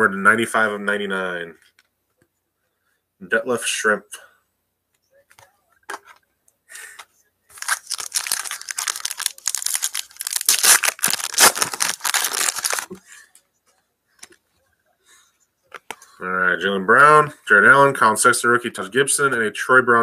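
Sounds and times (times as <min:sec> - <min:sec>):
wrapper tearing and crinkling: 0:07.6 - 0:13.0.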